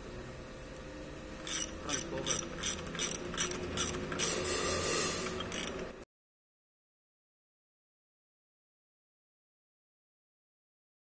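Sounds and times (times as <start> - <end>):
ratchet wrench clicking: 1.4 - 6.0.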